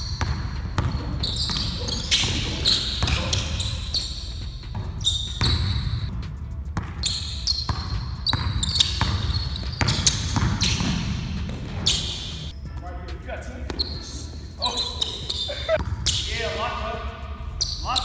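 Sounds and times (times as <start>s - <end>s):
sneaker squeaks: 0.0s - 6.1s, 6.8s - 12.7s, 13.6s - 16.6s, 17.5s - 18.0s
basketball dribbling on wooden floor: 7.7s - 11.9s.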